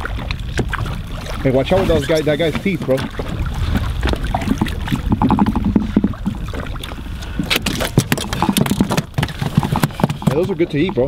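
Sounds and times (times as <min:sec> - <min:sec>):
fish splashing: 0:00.0 - 0:11.0
wind rumble on microphone: 0:00.0 - 0:11.0
fish flapping on deck: 0:07.4 - 0:10.7.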